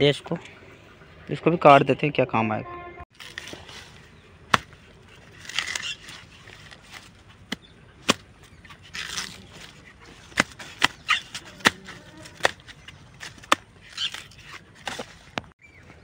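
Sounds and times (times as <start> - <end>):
hoe chopping plant stem: 4.5 - 4.8, 5.4 - 15.1.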